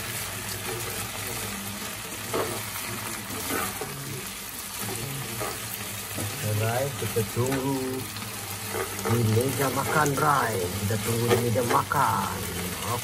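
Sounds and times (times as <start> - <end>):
chicken sizzling in a pan: 0.0 - 13.0
spatula scraping a pan: 0.5 - 4.2, 4.8 - 6.4, 7.5 - 12.0.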